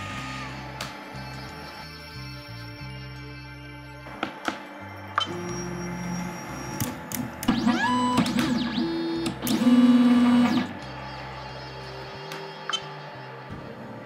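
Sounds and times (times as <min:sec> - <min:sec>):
printer stepper motors whining: 0:05.3 - 0:11.1.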